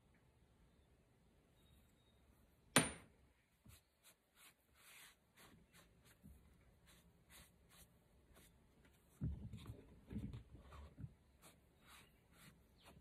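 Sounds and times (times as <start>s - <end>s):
sponge rubbing damp clay: 3.6s - 13.0s.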